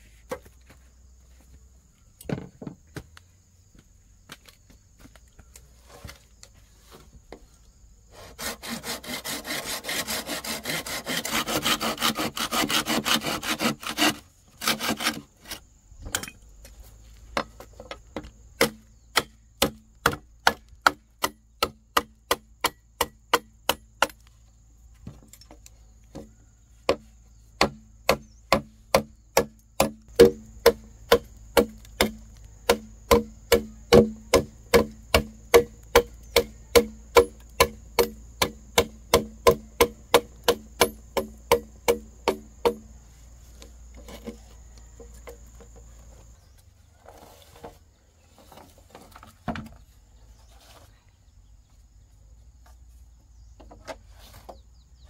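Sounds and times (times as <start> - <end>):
hollow blows on bamboo: 26.1 - 43.0.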